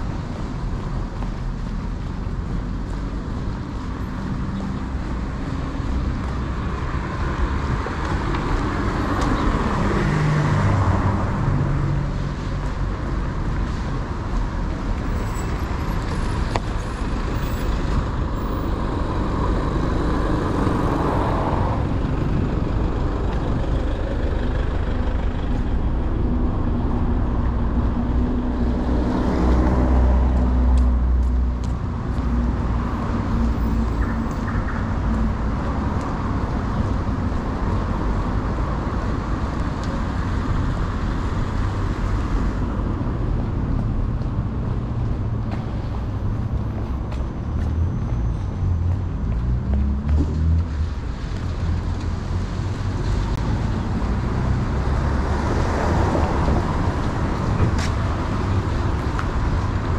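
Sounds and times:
cars passing: 0:00.0 - 0:59.9
low traffic rumble: 0:00.0 - 0:59.9.

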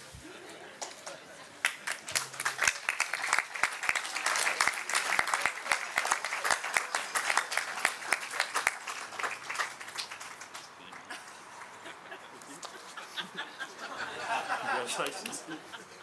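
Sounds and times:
audience applauding: 0:00.8 - 0:13.0.

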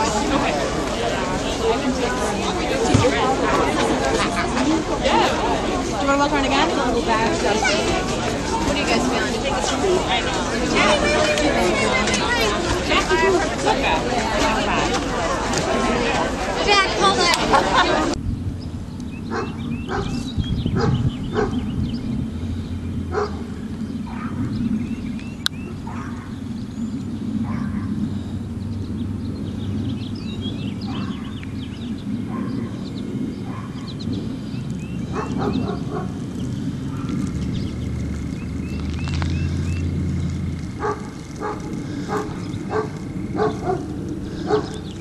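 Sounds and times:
birds chirping: 0:00.0 - 0:45.0
low rumble: 0:18.1 - 0:45.0
dog barking: 0:19.3 - 0:20.2, 0:20.8 - 0:21.6, 0:23.1 - 0:23.4, 0:24.1 - 0:24.4, 0:25.8 - 0:26.4, 0:27.4 - 0:27.9, 0:35.1 - 0:36.2, 0:40.8 - 0:44.8.

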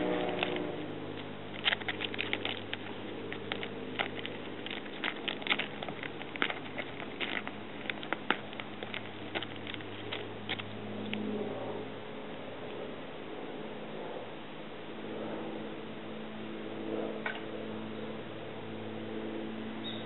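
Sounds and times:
distant propeller aircraft drone: 0:00.0 - 0:20.0
cat claws scrabbling at bark: 0:00.2 - 0:11.2.

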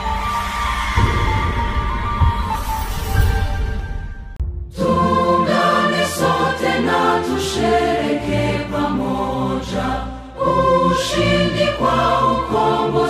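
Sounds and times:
backing music: 0:00.0 - 0:13.0
choir singing: 0:04.7 - 0:13.0.

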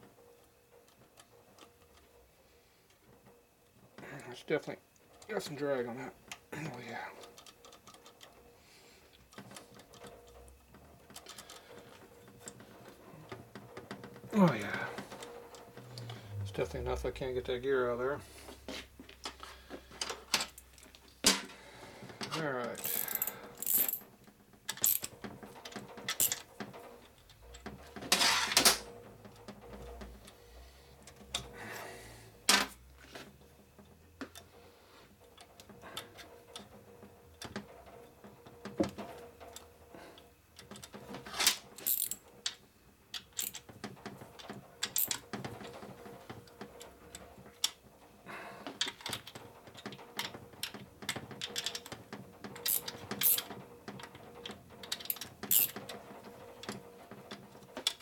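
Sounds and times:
socket ratchet clicking: 0:22.8 - 0:24.0
steel parts clacking: 0:22.8 - 0:24.0, 0:52.6 - 0:53.5.

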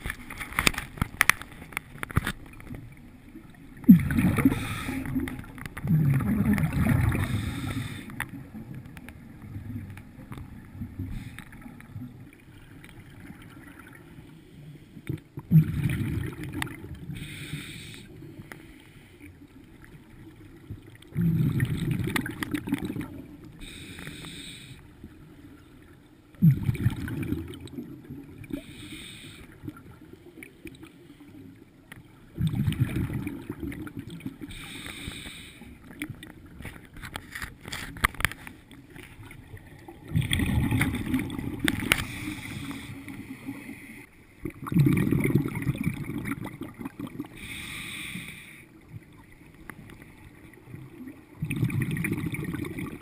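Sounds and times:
exhaled bubbles rumbling underwater: 0:00.0 - 0:37.2, 0:38.1 - 0:53.0
regulator hiss on inhale: 0:04.4 - 0:05.3, 0:07.2 - 0:08.2, 0:17.1 - 0:19.4, 0:23.6 - 0:25.0, 0:28.5 - 0:29.6, 0:34.4 - 0:35.9, 0:41.9 - 0:44.2, 0:47.4 - 0:48.8.

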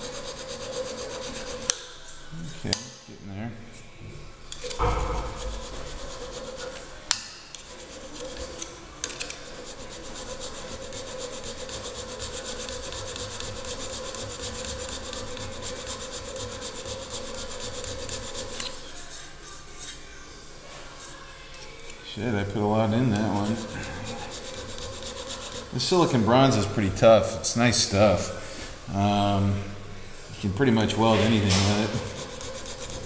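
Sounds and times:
file scraping metal: 0:04.8 - 0:06.9, 0:09.5 - 0:19.0, 0:22.9 - 0:26.7, 0:31.0 - 0:33.0.

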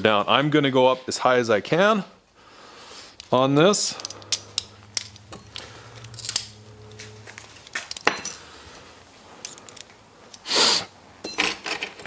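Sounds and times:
metal tools clinking on a workbench: 0:04.0 - 0:08.6, 0:11.2 - 0:12.0.

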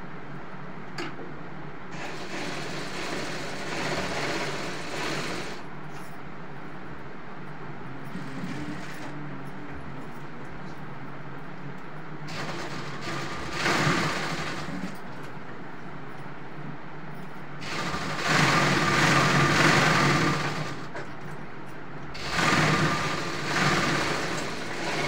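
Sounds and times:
workshop hum: 0:00.0 - 0:25.0
sewing machine stitching: 0:01.9 - 0:05.6, 0:08.1 - 0:09.1, 0:12.3 - 0:15.1, 0:17.6 - 0:21.0, 0:22.2 - 0:25.0.

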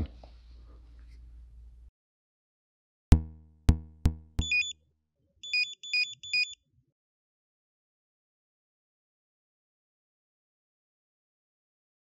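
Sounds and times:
deep synthesized thuds: 0:03.1 - 0:04.7
high electronic chirps: 0:04.1 - 0:04.7, 0:05.4 - 0:06.6.

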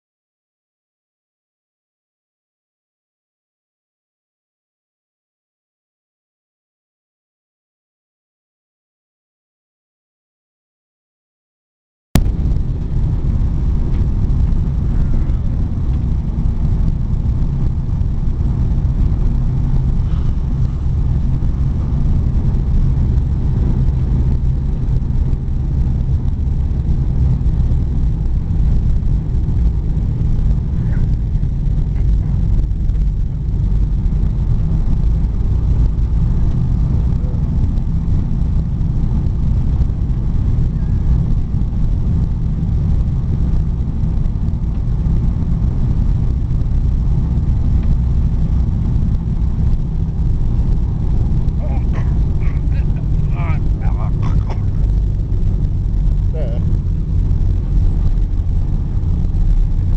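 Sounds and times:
snowmobile engine low drone: 0:12.2 - 0:59.9.

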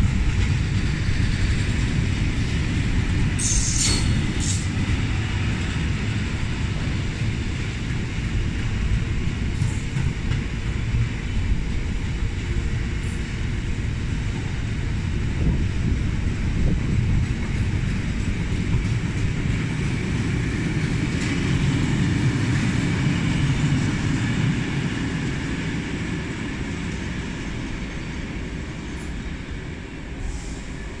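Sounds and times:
train wheel clatter: 0:00.0 - 0:25.8
train wagons rumbling past: 0:00.0 - 0:31.0.

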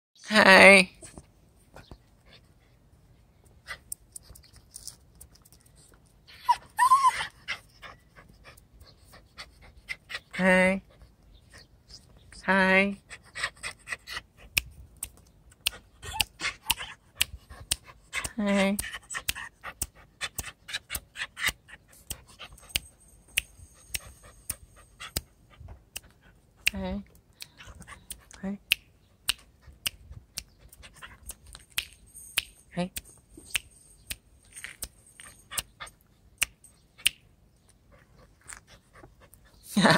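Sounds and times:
puppy whining: 0:06.3 - 0:09.2, 0:15.9 - 0:17.2
puppy panting: 0:06.4 - 0:11.8, 0:13.0 - 0:14.7, 0:15.6 - 0:26.6, 0:27.4 - 0:28.4, 0:29.2 - 0:32.3, 0:37.8 - 0:39.8.

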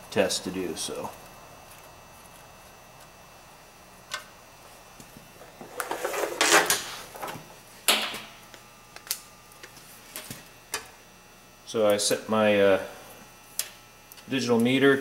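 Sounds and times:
rustle and scrape of handling: 0:05.4 - 0:07.4.

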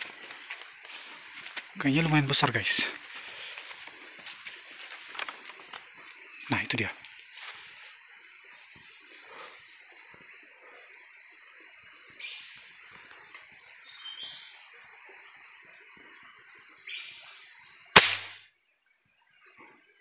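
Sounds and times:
insect drone: 0:00.0 - 0:20.0
bird calls: 0:13.8 - 0:14.6
rifle shot: 0:18.0 - 0:18.4.

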